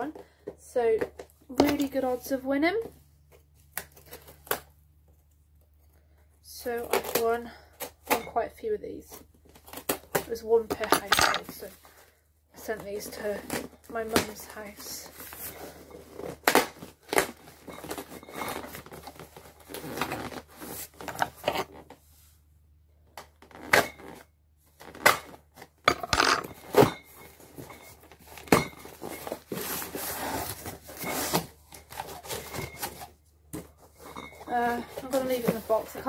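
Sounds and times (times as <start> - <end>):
cardboard scraping and rustling: 26.2 - 36.0.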